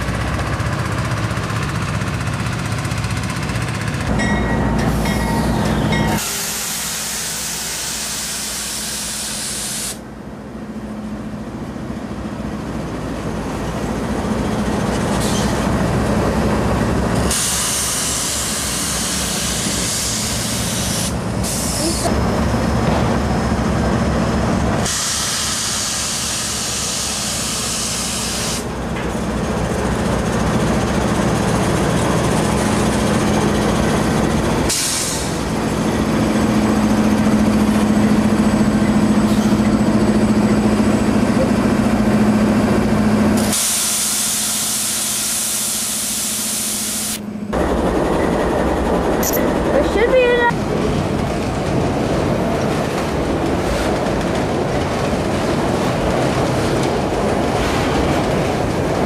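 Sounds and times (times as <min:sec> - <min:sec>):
diesel locomotive engine drone: 0:00.0 - 0:59.0
loud hiss: 0:06.2 - 0:10.0, 0:24.8 - 0:28.7, 0:43.4 - 0:47.2.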